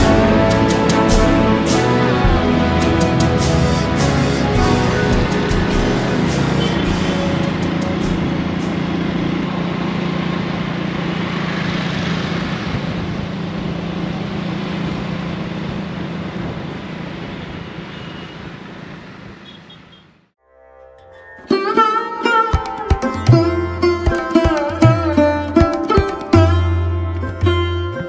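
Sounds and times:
busy road traffic: 0:00.0 - 0:20.3.

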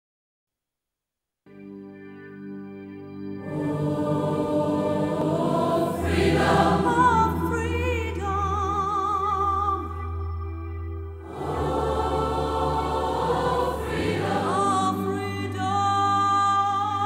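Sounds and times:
choir singing held notes: 0:03.4 - 0:07.8, 0:11.2 - 0:15.7
voice singing with vibrato: 0:03.4 - 0:10.1, 0:11.3 - 0:17.0.

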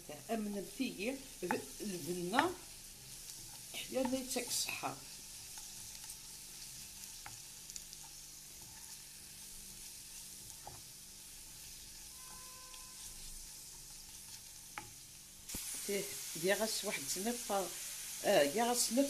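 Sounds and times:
onions sizzling in oil: 0:00.0 - 0:19.0
wooden spoon scraping and tapping: 0:01.4 - 0:15.1.

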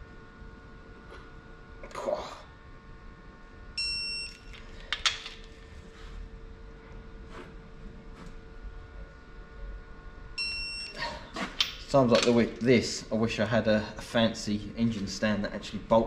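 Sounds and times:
torque wrench beep: 0:03.8 - 0:04.6, 0:10.4 - 0:11.0.

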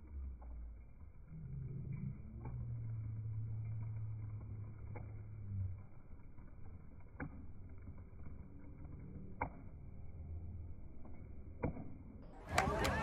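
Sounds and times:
muffled rumble of voices: 0:12.3 - 0:13.0.

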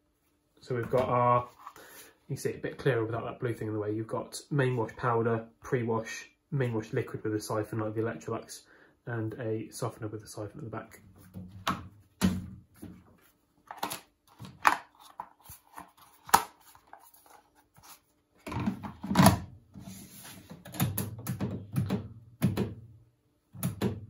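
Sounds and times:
plastic rattling and knocking: 0:18.4 - 0:19.4
plastic drawer clicks and knocks: 0:20.6 - 0:22.8, 0:23.6 - 0:24.0.

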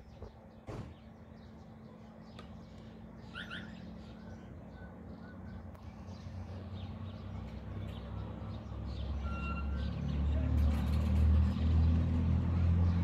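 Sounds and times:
quiet street sound: 0:00.0 - 0:13.0
car approaching: 0:00.2 - 0:13.0
short bird calls: 0:03.2 - 0:05.6.

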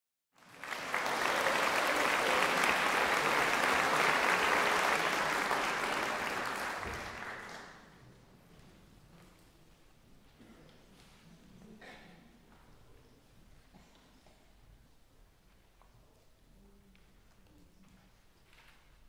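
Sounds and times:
audience applauding: 0:00.4 - 0:07.9.

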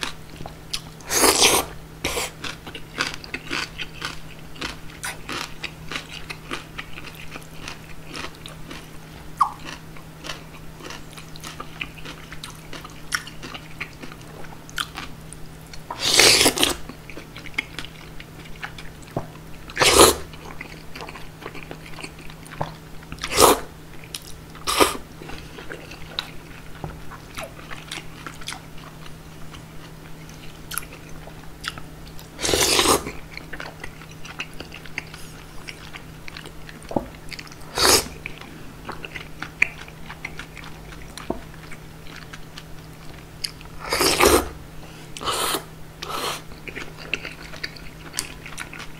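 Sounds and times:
chewing and mouth clicks: 0:00.0 - 0:44.3, 0:46.0 - 0:48.9
slurping noodles: 0:01.1 - 0:02.4, 0:16.0 - 0:16.8, 0:19.8 - 0:20.3, 0:23.3 - 0:23.7, 0:24.7 - 0:25.0, 0:32.4 - 0:33.2, 0:37.7 - 0:38.2, 0:43.8 - 0:44.5, 0:45.2 - 0:46.4.

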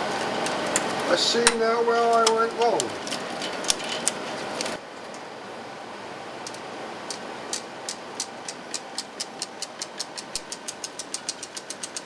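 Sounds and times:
steady background hum: 0:00.0 - 0:12.0
projector mechanism clicking: 0:06.4 - 0:12.0.

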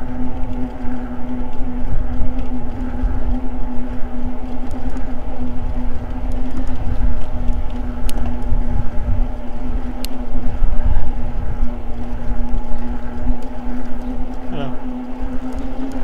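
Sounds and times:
electric motor whining: 0:00.0 - 0:16.0
tyres rolling on pavement: 0:00.0 - 0:16.0
wind rumble on microphone: 0:00.0 - 0:16.0.

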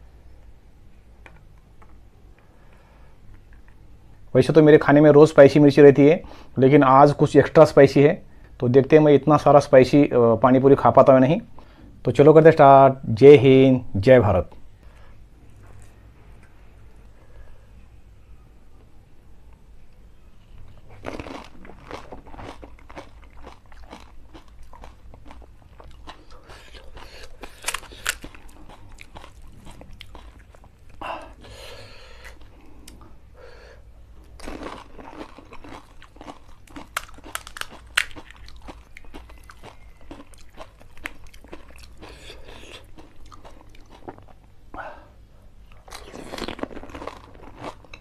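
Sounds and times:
chewing: 0:20.9 - 0:31.0, 0:34.3 - 0:44.4, 0:45.7 - 0:48.0
crisp shells cracking: 0:21.1 - 0:29.4, 0:34.4 - 0:42.1.

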